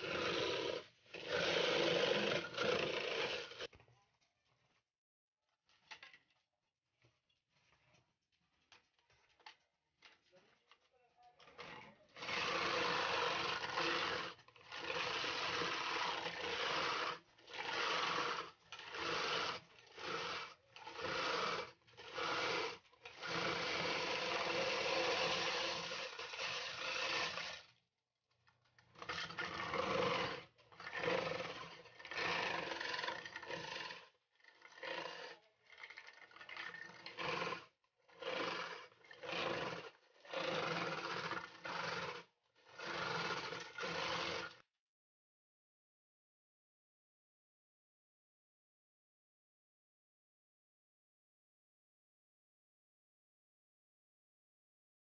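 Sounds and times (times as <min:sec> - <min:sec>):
electric ice shaver grinding ice: 0:00.0 - 0:03.7, 0:11.4 - 0:27.8, 0:28.5 - 0:44.6.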